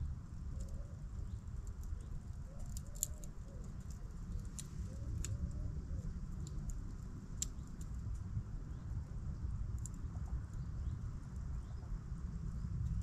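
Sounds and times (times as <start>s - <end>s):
campfire crackling and popping: 1.6s - 5.4s, 6.3s - 8.3s.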